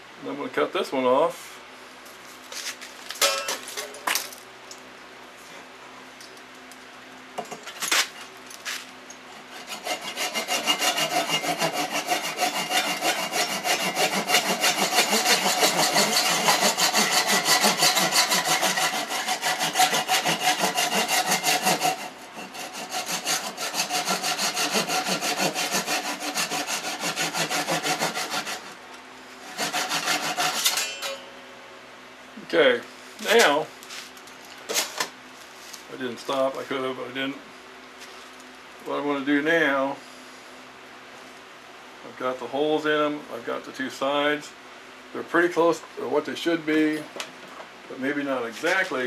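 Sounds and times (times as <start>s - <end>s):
hand saw cutting wood: 9.4s - 28.8s, 29.4s - 31.2s
metallic clink: 30.8s - 31.4s.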